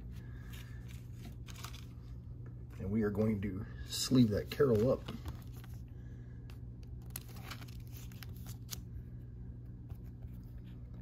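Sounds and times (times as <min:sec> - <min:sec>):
steady low hum: 0:00.0 - 0:11.0
plastic sleeve rustling: 0:00.4 - 0:02.2, 0:06.8 - 0:08.9.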